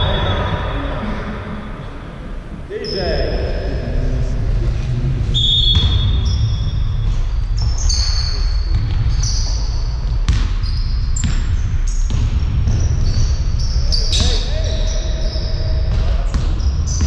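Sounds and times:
low rumble of hall: 0:00.0 - 0:17.0
sneakers squeaking on court: 0:05.4 - 0:17.0
basketball bouncing: 0:05.6 - 0:14.5, 0:15.7 - 0:17.0.

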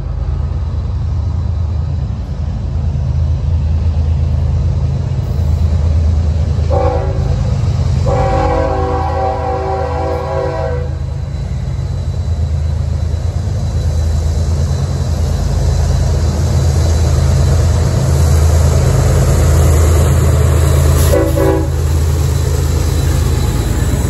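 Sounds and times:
diesel locomotive engines rumbling: 0:00.0 - 0:24.0
train horn blast: 0:06.7 - 0:11.1, 0:21.0 - 0:21.9.

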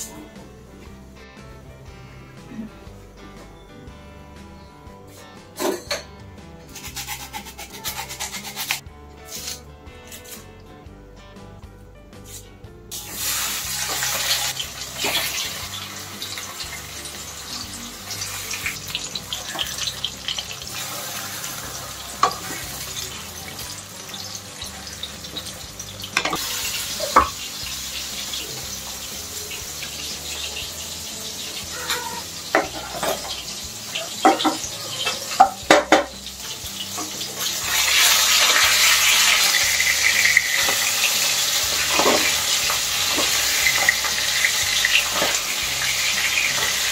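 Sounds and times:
fish sizzling in hot oil: 0:06.8 - 0:09.6, 0:12.3 - 0:46.9
wooden spatula scraping a pan: 0:13.2 - 0:16.6.

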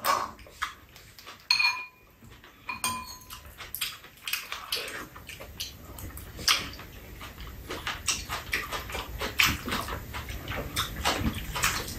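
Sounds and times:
wet chewing and lip-smacking: 0:00.0 - 0:11.9
spoon knocking a bowl: 0:01.5 - 0:02.0, 0:02.7 - 0:03.3.

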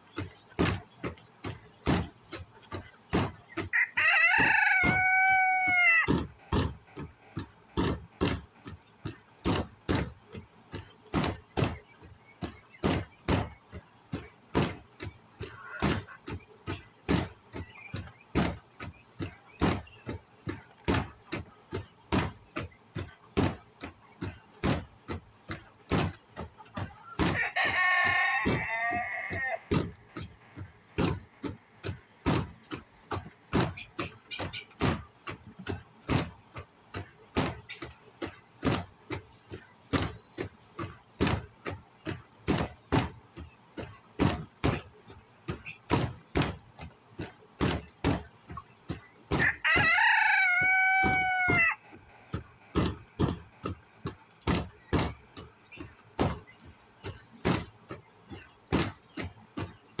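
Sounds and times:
sharp knocks: 0:00.0 - 1:00.0
rooster crowing: 0:03.8 - 0:06.1, 0:27.3 - 0:29.7, 0:49.4 - 0:51.8.

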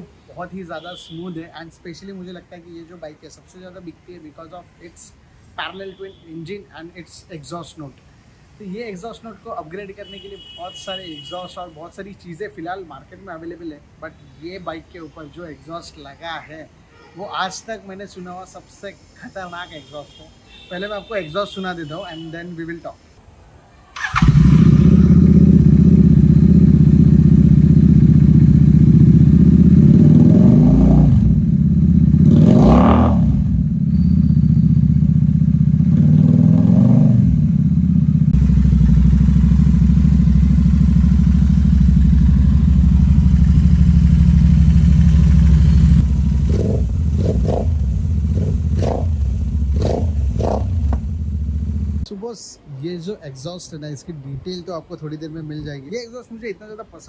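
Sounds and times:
quick throttle blips: 0:24.0 - 0:26.1
motorcycle engine idling: 0:24.0 - 0:30.1, 0:31.2 - 0:32.3, 0:33.4 - 0:36.6, 0:37.2 - 0:52.1
motorcycle engine revving: 0:24.0 - 0:52.0.

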